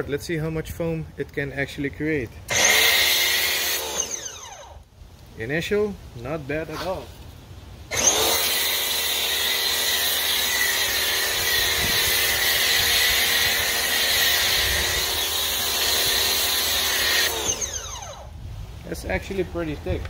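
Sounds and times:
pressure washer motor running: 7.9 - 18.2.

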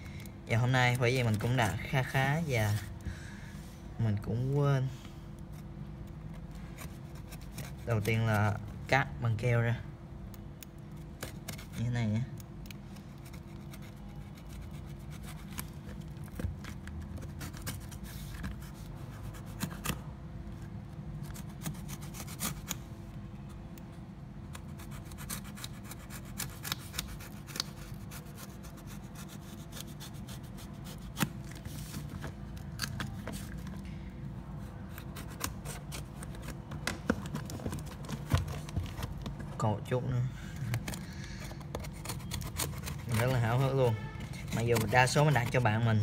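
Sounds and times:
knife scraping cardboard: 6.7 - 8.6, 13.2 - 20.0, 21.2 - 22.8, 24.6 - 32.3, 34.6 - 39.2, 40.8 - 46.0.

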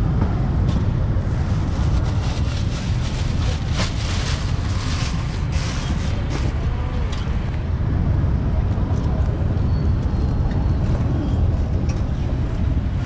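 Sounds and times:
plastic bag crinkling: 1.6 - 6.3.

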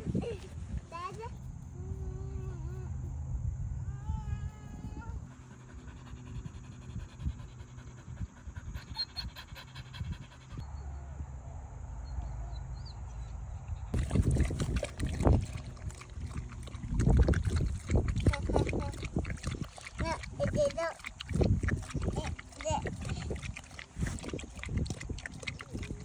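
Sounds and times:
dog panting: 5.2 - 10.6, 15.5 - 26.0
dogs licking and lapping: 13.9 - 26.0.

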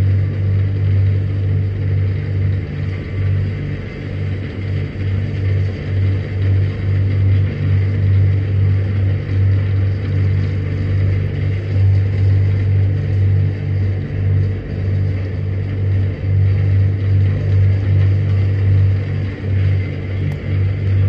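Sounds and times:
crusher machine drone: 0.0 - 21.0.

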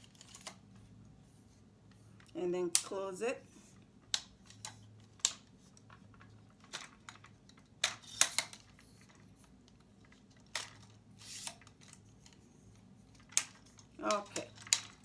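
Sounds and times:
tripod leg sliding scrape: 11.2 - 11.7.

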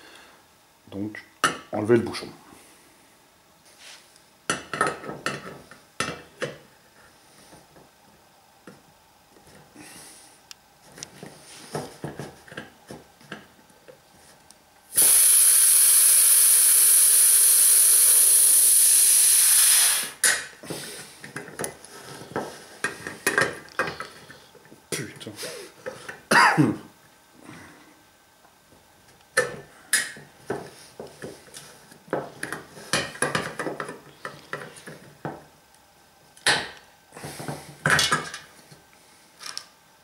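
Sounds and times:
gas hissing from keg: 14.9 - 21.1.

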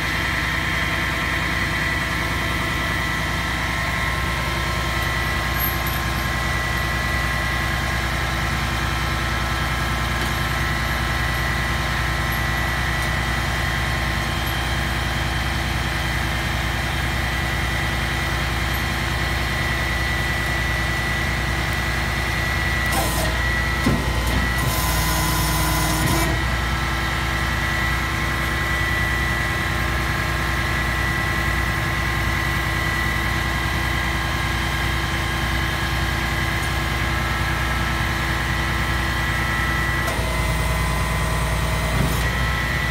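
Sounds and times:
diesel engine idling: 0.0 - 42.9.

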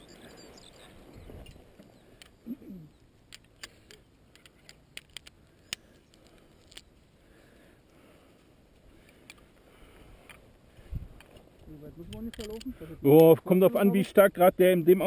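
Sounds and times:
carabiners and buckles clicking: 1.4 - 7.0, 12.1 - 12.8.

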